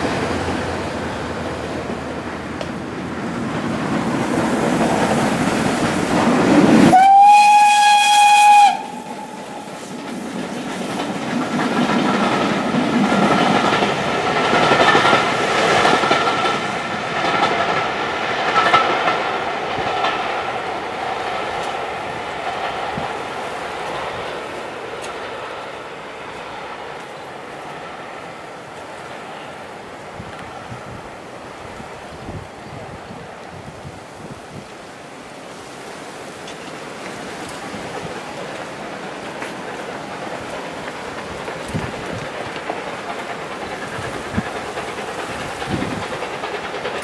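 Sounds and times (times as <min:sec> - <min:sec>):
carriages clattering on rails: 0:00.0 - 0:47.0
steam locomotive passing: 0:00.0 - 0:47.0
steam whistle: 0:06.8 - 0:09.7.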